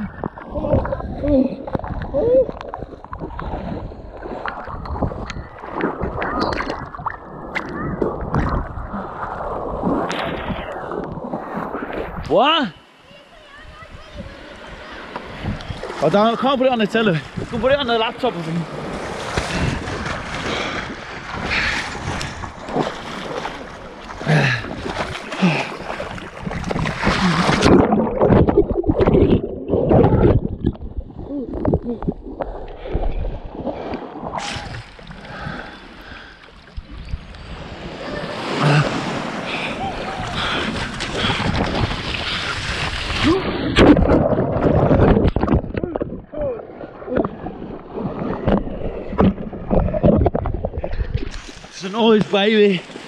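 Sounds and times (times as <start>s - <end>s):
muffled underwater churn: 0.0s - 16.0s, 17.1s - 51.8s
sea water splashing: 0.0s - 53.0s
swimmer gasping: 24.2s - 26.1s, 38.0s - 43.7s.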